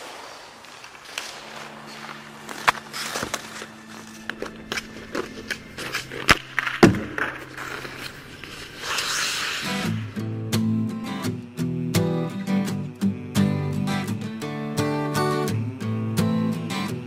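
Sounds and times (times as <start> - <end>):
skates scraping on ice: 0.0 - 10.4
low steady hum: 0.0 - 17.0
hockey sticks and puck knocking: 2.6 - 8.6.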